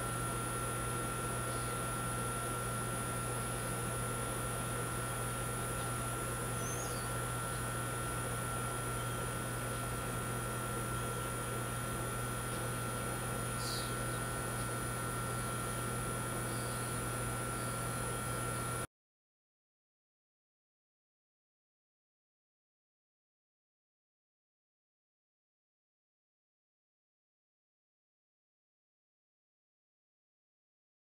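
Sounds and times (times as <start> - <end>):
faint high whine: 0.0 - 18.8
outdoor background hum: 0.0 - 18.9.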